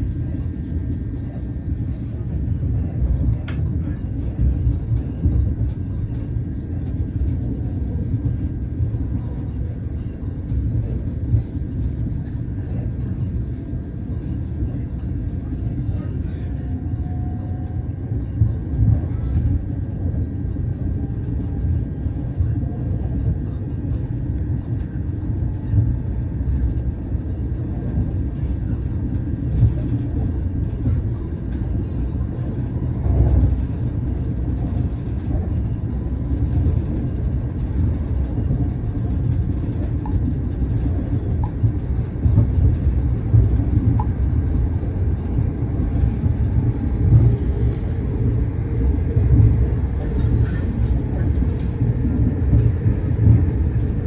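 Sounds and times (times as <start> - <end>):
train rumbling inside carriage: 0.0 - 54.0.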